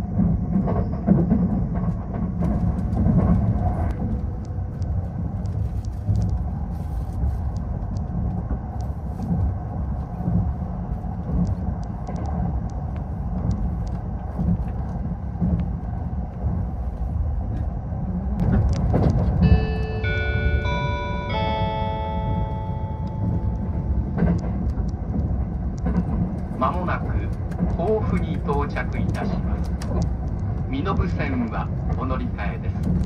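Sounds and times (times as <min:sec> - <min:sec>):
train rumbling: 0:00.0 - 0:33.0
faint irregular clicks: 0:01.9 - 0:17.7, 0:23.0 - 0:33.0.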